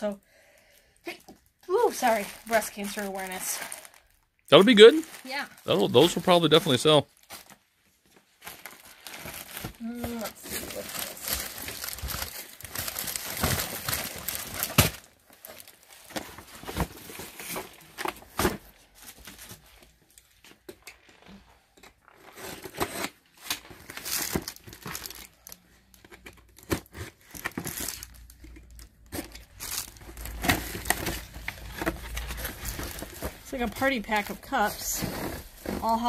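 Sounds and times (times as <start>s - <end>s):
plastic sleeves crinkling: 1.7s - 20.4s, 21.0s - 26.2s, 27.2s - 36.0s
packing tape tearing: 22.1s - 25.6s, 26.4s - 36.0s.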